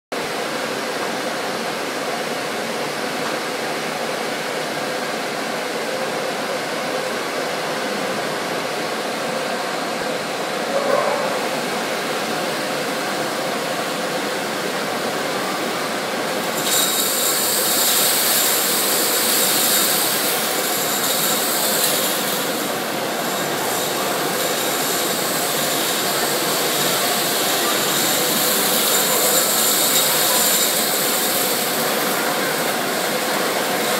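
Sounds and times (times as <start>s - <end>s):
vacuum hose hissing rush: 8.8s - 33.9s.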